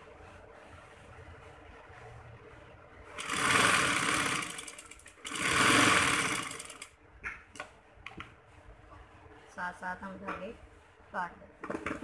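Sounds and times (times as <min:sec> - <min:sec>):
sewing machine stitching: 0:03.1 - 0:06.9.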